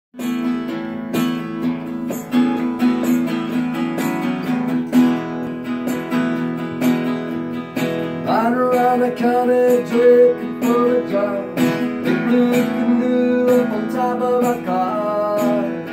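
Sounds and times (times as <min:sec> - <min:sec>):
acoustic guitar strumming: 0:00.2 - 0:15.9.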